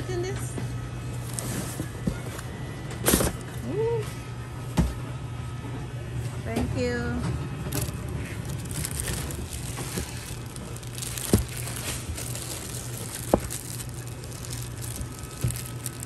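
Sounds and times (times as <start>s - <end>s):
steady low hum: 0.0s - 16.0s
plastic bags crinkling: 1.2s - 2.0s, 7.7s - 16.0s.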